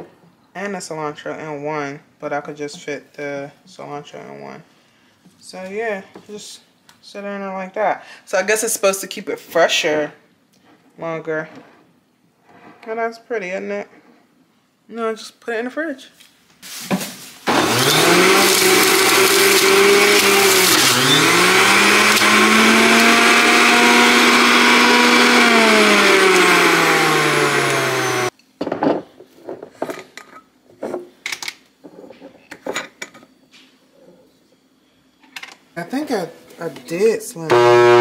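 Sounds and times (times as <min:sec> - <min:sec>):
juicer motor running: 0:17.5 - 0:28.3, 0:37.5 - 0:38.0.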